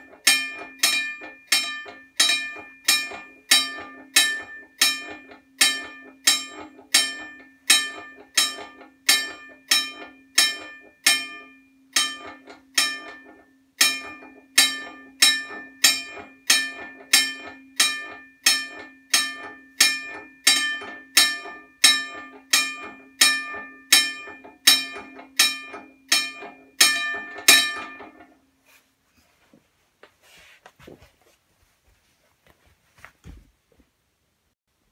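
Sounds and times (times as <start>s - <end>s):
railroad crossing bell ringing: 0.0s - 28.2s.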